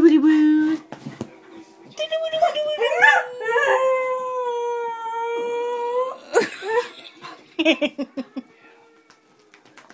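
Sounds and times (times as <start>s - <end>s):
dog howling: 2.7s - 6.5s
music: 7.2s - 9.9s.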